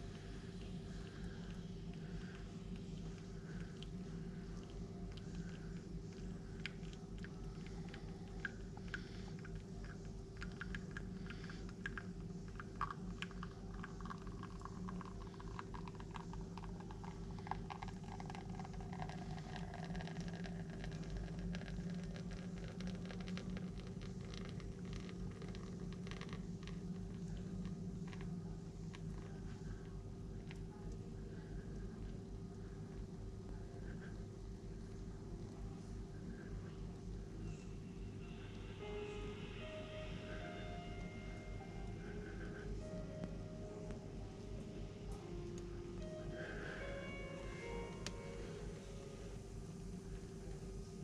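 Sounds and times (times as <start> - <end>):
steady low hum: 0.0 - 51.0
espresso dripping into glass: 0.6 - 29.6.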